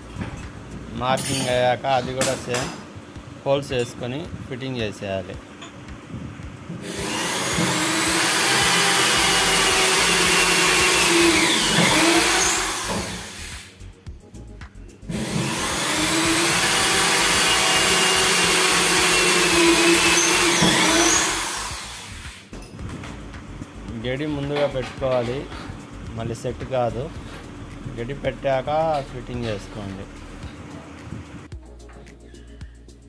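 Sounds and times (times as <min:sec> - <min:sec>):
electric drill boring: 0:06.8 - 0:13.8, 0:15.1 - 0:22.5.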